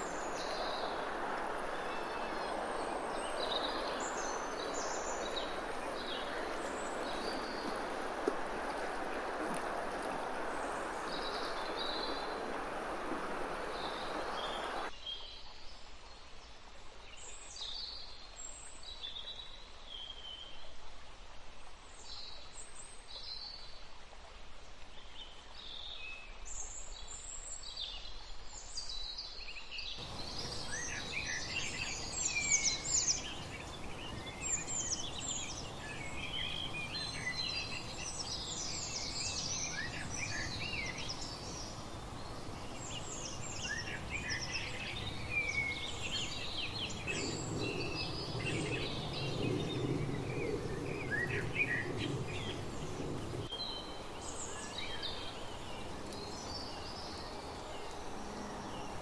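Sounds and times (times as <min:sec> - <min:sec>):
outdoor background hiss: 0:00.0 - 0:59.0
songbirds chirping and singing: 0:29.9 - 0:59.0.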